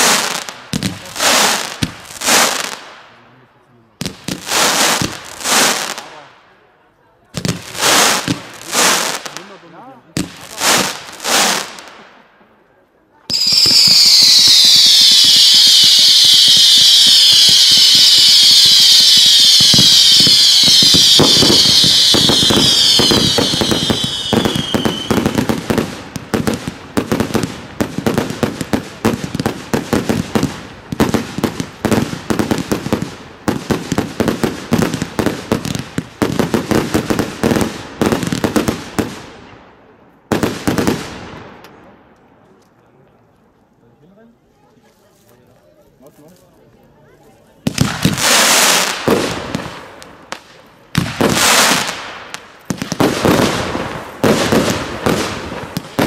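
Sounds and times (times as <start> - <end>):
whistling fireworks: 0.0 - 3.0, 13.3 - 39.5, 47.6 - 56.0
crackling firework reports: 0.0 - 6.5, 7.3 - 12.6, 13.2 - 42.2, 47.5 - 56.0
firework bang: 13.3 - 39.1.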